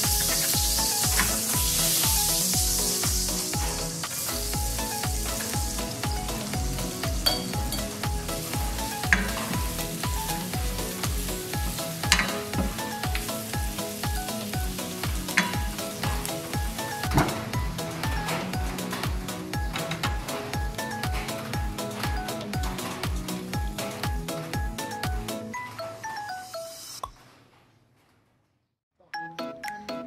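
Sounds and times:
butter sizzling in a pan: 0.0 - 24.0
background music with beat: 0.0 - 27.1, 29.2 - 30.0.

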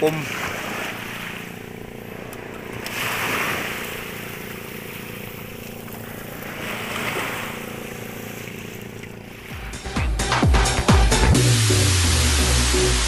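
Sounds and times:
wind: 0.0 - 10.4
boat motor humming: 0.0 - 13.0
water rushing: 0.0 - 13.0.

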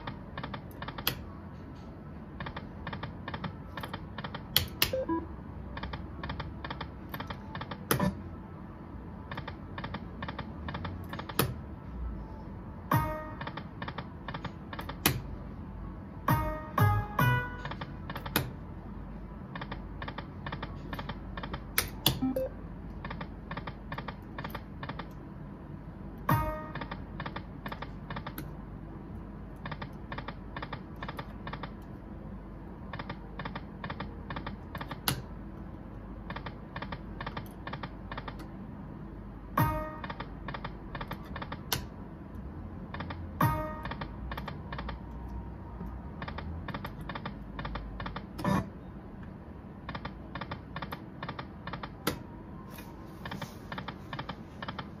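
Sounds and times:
steady low hum: 0.0 - 55.0
slot machine chime: 4.9 - 5.3, 22.2 - 22.6
electronic reel ticks: 5.8 - 8.1, 29.6 - 32.0, 32.9 - 35.2, 39.6 - 48.5.

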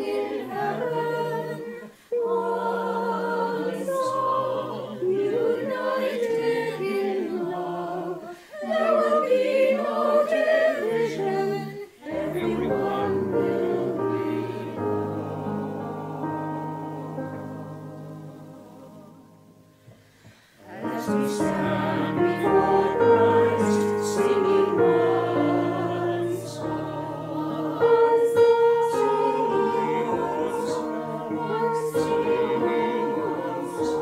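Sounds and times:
mixed choir singing: 0.0 - 34.0.

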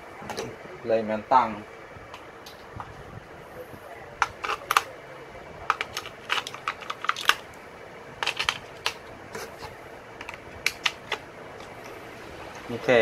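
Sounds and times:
batteries clicking into compartment: 4.2 - 4.9, 5.7 - 7.4, 8.2 - 9.1, 10.2 - 11.8.

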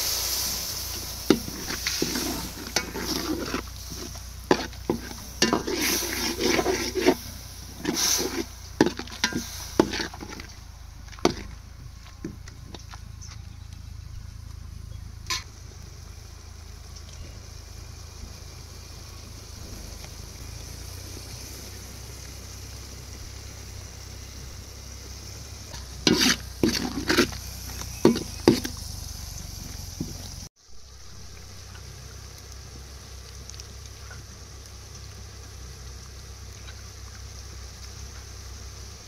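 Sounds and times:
food sizzling in a pot: 0.0 - 11.5, 14.7 - 39.0
clattering stirring strokes: 0.0 - 11.6, 25.7 - 29.0.

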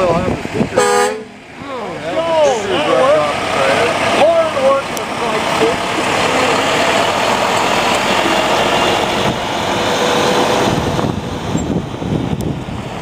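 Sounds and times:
diesel truck engine: 0.0 - 13.0
tyres rolling on gravel: 2.8 - 9.8.

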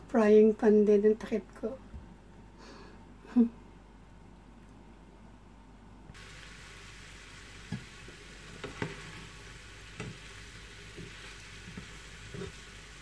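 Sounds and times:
food sizzling in frying pan: 6.2 - 13.0.

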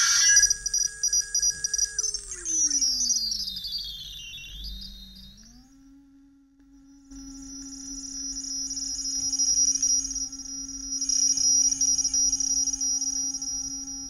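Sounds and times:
synth drone and whine: 0.0 - 14.0.

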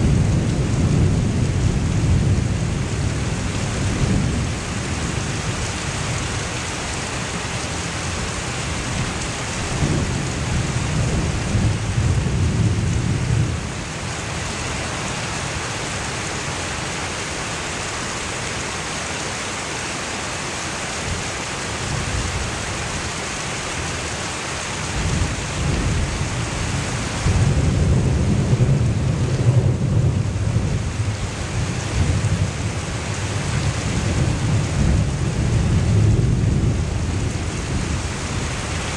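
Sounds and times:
thunder rumbling: 0.0 - 4.9, 24.9 - 38.9
heavy rain pouring: 0.0 - 38.9.

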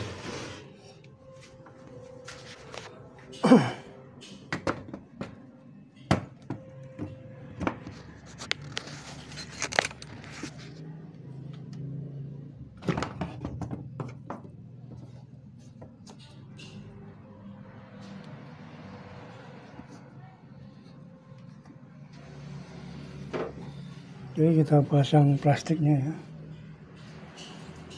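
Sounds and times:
objects knocking on workbench: 4.5 - 5.4, 12.8 - 14.6.

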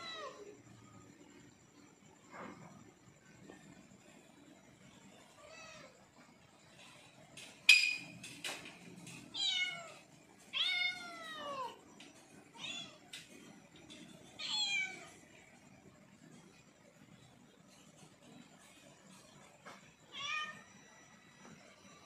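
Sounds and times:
cat meowing: 14.4 - 15.1.

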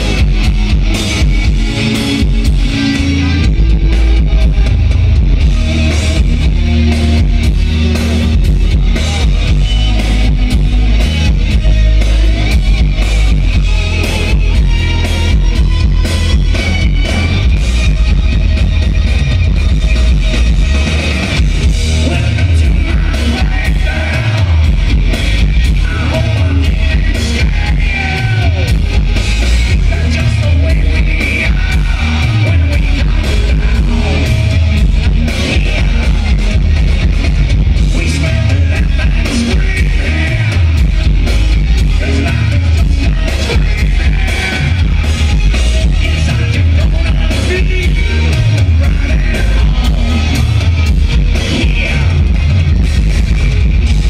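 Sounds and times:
drums: 0.0 - 54.0
electric guitars: 0.0 - 54.0
heavy bass: 0.0 - 54.0
man singing lead vocal: 21.6 - 53.1.

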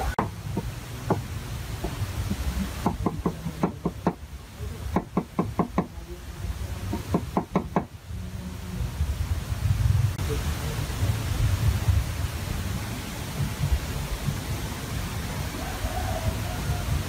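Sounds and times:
cleaver chopping on wooden board: 0.2 - 4.2.

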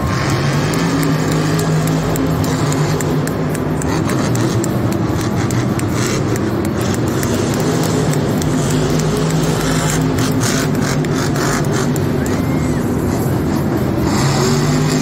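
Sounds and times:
truck engines running loud: 0.0 - 15.0
trucks idling: 0.0 - 15.0.

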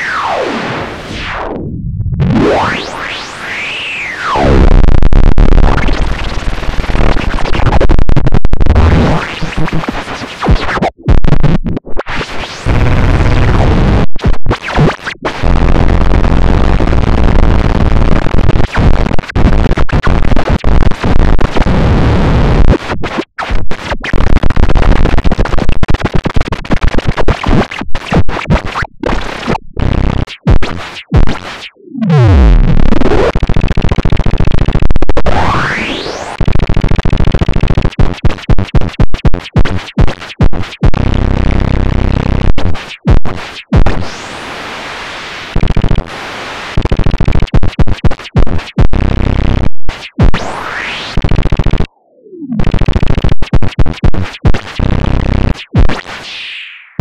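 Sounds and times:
stuttering filtered white noise: 32.1 - 42.8.

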